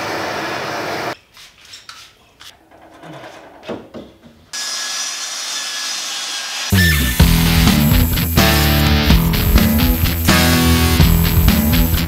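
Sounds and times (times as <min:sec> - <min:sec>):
wood knocking and rubbing: 0:01.9 - 0:04.5
chop saw running: 0:04.6 - 0:09.4
torch flame hissing: 0:06.6 - 0:11.9.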